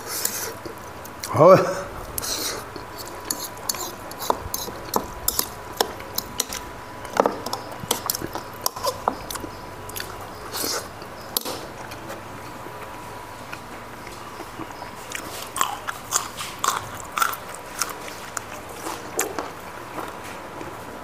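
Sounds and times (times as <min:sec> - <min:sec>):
chewing and mouth clicks: 0:02.1 - 0:20.8.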